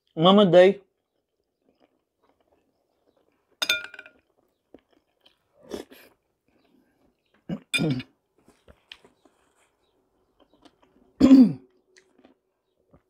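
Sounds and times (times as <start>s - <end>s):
faint chewing: 0.9s - 13.0s
spoon clinking on glass: 3.6s - 4.2s.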